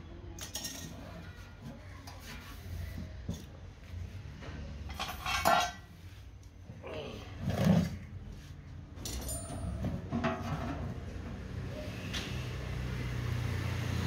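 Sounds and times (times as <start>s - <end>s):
thin metal tank clanking: 4.9s - 5.9s.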